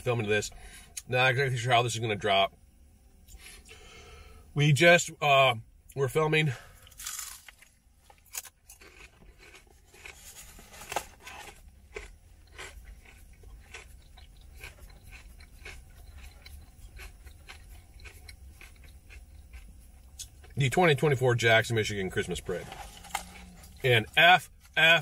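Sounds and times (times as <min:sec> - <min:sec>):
low steady hum: 0:00.0 - 0:25.0
crunchy chewing: 0:06.7 - 0:24.8.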